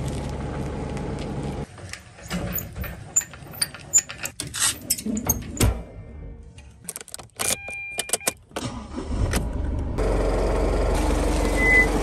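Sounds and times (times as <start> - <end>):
truck engine starting and idling: 8.2 - 12.0.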